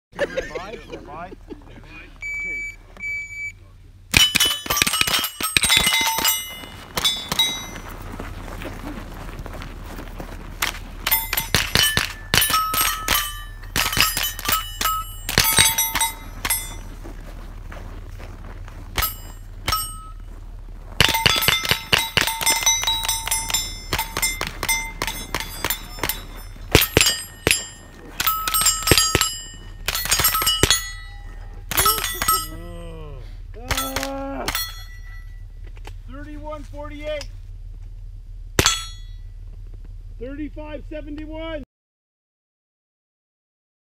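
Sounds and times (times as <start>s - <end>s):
steel targets ringing: 4.1s - 7.9s, 11.0s - 17.0s, 18.9s - 20.4s, 21.0s - 32.8s, 33.6s - 35.5s, 38.6s - 39.4s
rifle shots: 11.0s - 16.8s, 21.0s - 31.0s.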